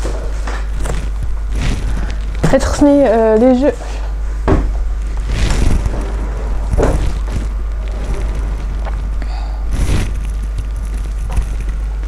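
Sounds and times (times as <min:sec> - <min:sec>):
steady low hum: 0:00.0 - 0:12.0
dull knocks of objects: 0:04.4 - 0:04.8
faint rustles and ticks: 0:05.0 - 0:12.0.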